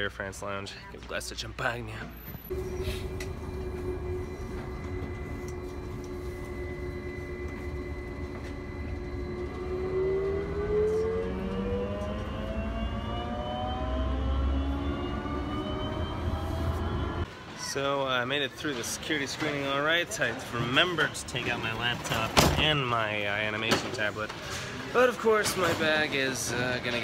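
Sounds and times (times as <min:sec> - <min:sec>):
train rolling rumble: 0:01.9 - 0:17.4
train motor whining: 0:02.2 - 0:17.2
electric train drive humming: 0:02.2 - 0:17.3.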